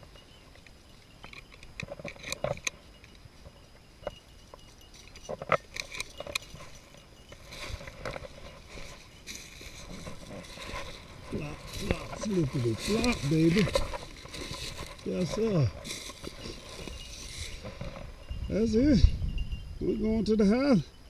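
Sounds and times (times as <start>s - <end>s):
dry leaves rustling and crackling: 5.0s - 18.3s
footsteps through dry leaves: 6.6s - 18.3s.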